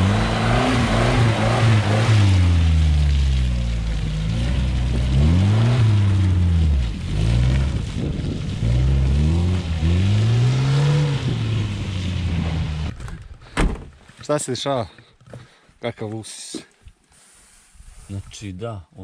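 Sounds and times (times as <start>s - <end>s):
car engine revving: 0.0s - 12.9s.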